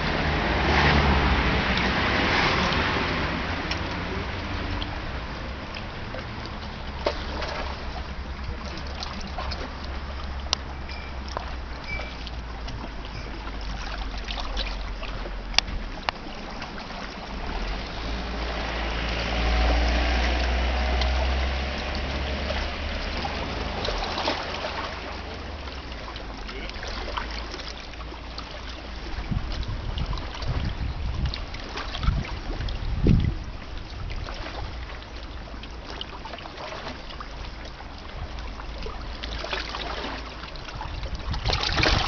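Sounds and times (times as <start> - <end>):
low rumble: 0.0 - 42.0
water lapping against rocky shore: 0.0 - 42.0.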